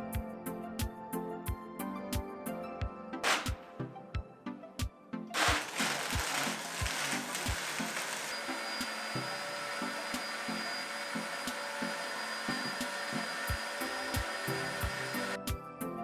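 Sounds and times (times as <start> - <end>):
blender motor whining: 5.4 - 15.4.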